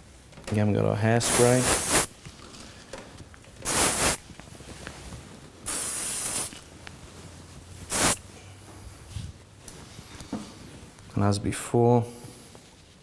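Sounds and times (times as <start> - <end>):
aerosol spray hissing: 1.2 - 2.1, 3.6 - 4.2, 5.7 - 6.6, 7.9 - 8.2.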